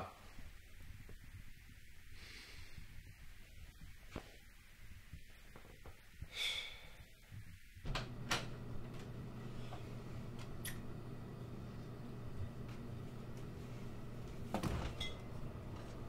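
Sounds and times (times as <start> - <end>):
short sharp breath: 2.2 - 2.9, 6.3 - 7.1
steady low hum: 7.2 - 16.0.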